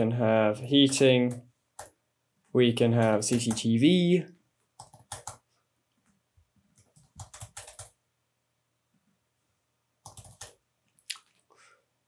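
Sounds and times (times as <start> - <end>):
faint keyboard typing: 0.7 - 8.0, 10.0 - 11.6.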